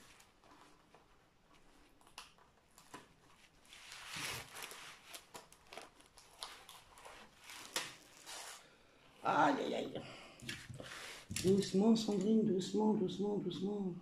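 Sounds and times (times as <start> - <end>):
plastic sheet crinkling: 0.0 - 8.6.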